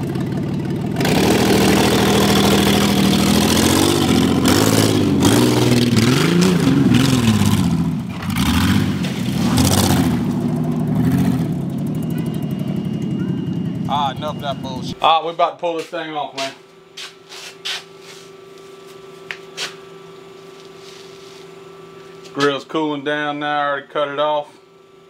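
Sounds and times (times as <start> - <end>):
minivan engine revving: 0.0 - 15.0.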